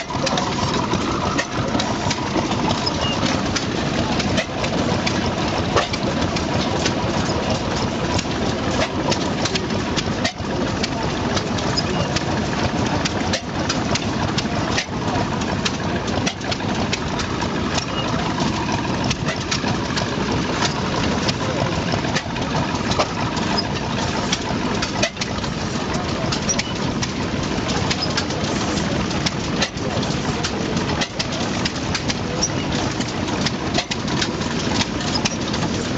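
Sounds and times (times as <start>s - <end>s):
stationary gas engine running: 0.0s - 35.9s.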